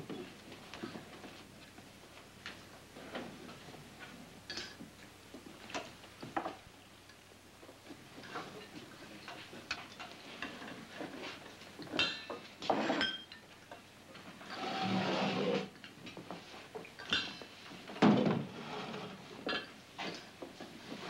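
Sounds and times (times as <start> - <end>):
dishes and cutlery clinking: 8.2 - 13.9, 16.9 - 17.4, 19.4 - 20.3.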